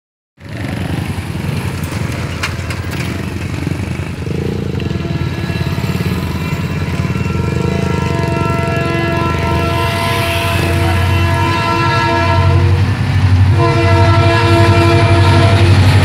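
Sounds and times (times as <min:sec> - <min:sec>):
motorcycle engines idling: 0:00.4 - 0:16.0
distant locomotive horn: 0:04.2 - 0:16.0.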